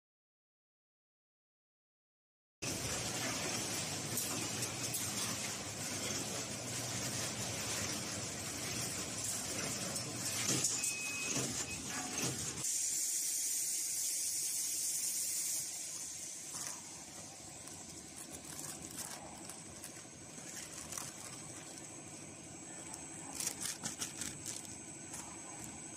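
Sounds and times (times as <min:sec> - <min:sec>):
packaging machine running: 0:02.6 - 0:12.7, 0:16.4 - 0:25.9
sharp crackles: 0:16.5 - 0:22.0
plastic bag crinkling: 0:16.5 - 0:25.9.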